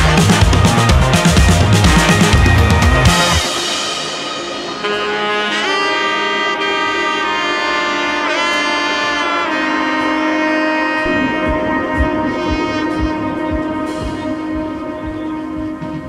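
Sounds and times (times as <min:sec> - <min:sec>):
steady low beat: 0:00.0 - 0:05.7, 0:10.0 - 0:16.0
long held melodic notes: 0:00.7 - 0:16.0.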